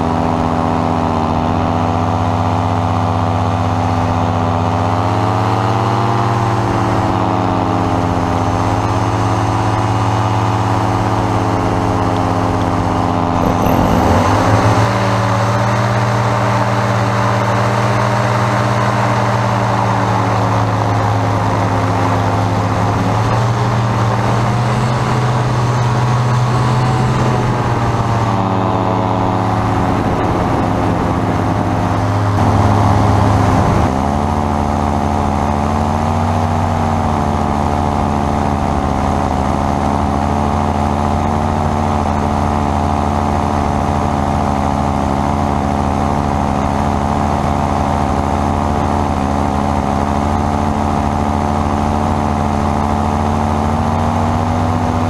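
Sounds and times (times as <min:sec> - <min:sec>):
paraglider engine and propeller droning: 0:00.0 - 0:55.0.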